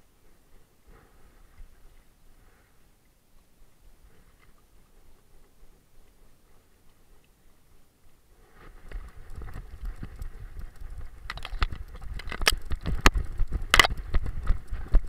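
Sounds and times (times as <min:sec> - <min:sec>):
sharp clicks: 0:08.9 - 0:15.0.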